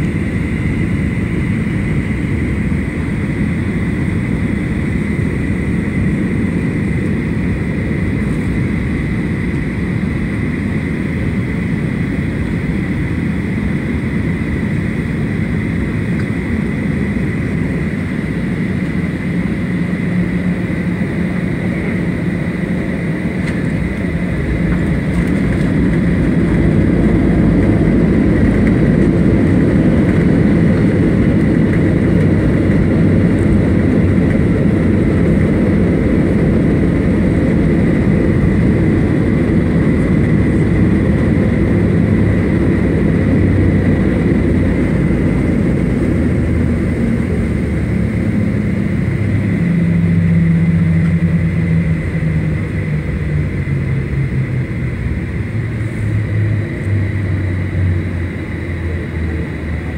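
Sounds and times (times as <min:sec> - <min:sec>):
jet engine roar: 0:00.0 - 0:59.9
wheels rumbling on runway: 0:00.0 - 0:59.9.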